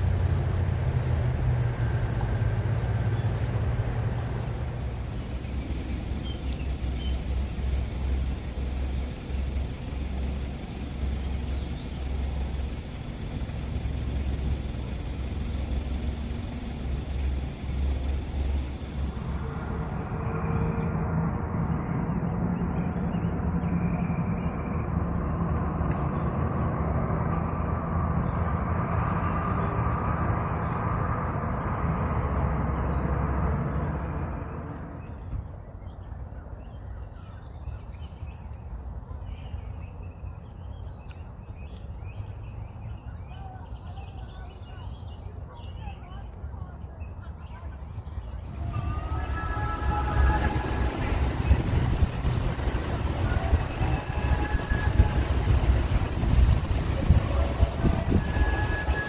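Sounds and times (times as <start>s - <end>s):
constant hiss: 0.0s - 21.4s, 48.4s - 59.0s
low rumble: 48.3s - 59.0s.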